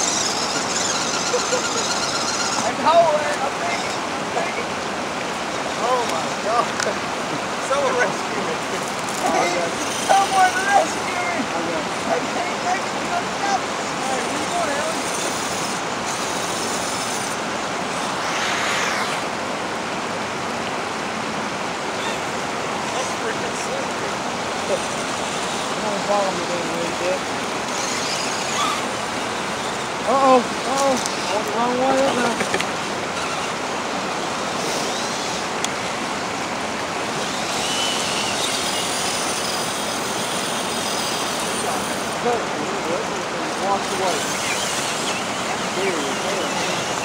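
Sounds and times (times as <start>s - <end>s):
river water rushing over rocks: 0.0s - 47.0s.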